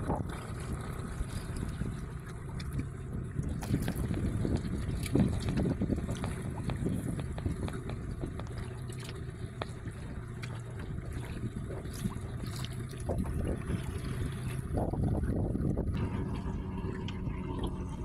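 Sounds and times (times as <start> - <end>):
steady low rumble: 0.0 - 18.0
waves lapping against boat hull: 0.0 - 18.0.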